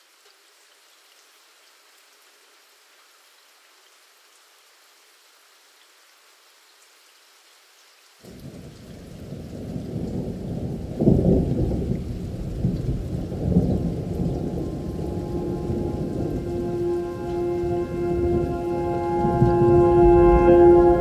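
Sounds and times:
steady rain: 0:00.0 - 0:21.0
thunder rumble: 0:08.5 - 0:21.0
sustained instrument tones: 0:14.0 - 0:21.0.

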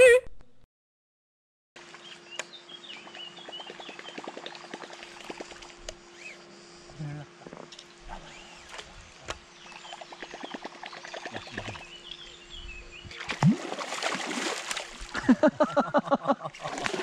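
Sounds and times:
faint bird chirps: 0:06.1 - 0:06.8
fish splashing in water: 0:13.1 - 0:15.2, 0:16.6 - 0:17.0.

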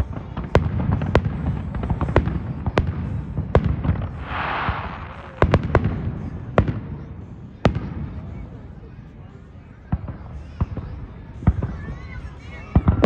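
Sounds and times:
firework shells bursting: 0:03.5 - 0:06.0.

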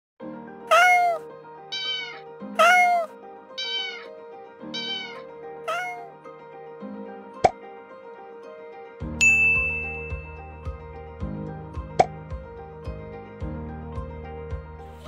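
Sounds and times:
light background music: 0:00.2 - 0:15.0
cat meowing: 0:00.7 - 0:04.1, 0:04.7 - 0:06.1.

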